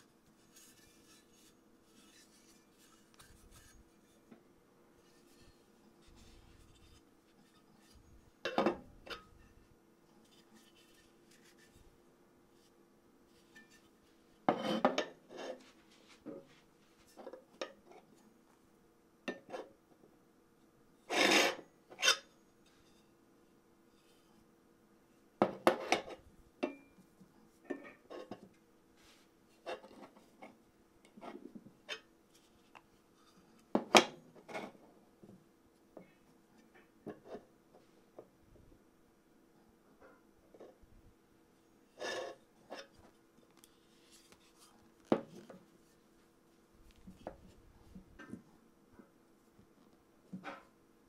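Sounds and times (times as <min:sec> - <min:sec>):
metal stand rubbing: 0:00.4 - 0:04.3.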